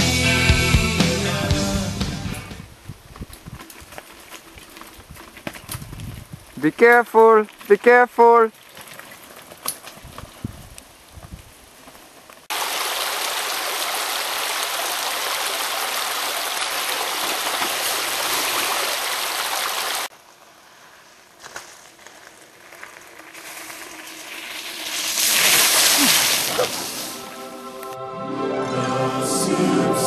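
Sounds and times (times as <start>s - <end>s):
bike splashing through puddle: 8.5s - 10.5s, 12.5s - 27.4s
stream running over rocks: 11.8s - 20.1s, 22.8s - 27.4s.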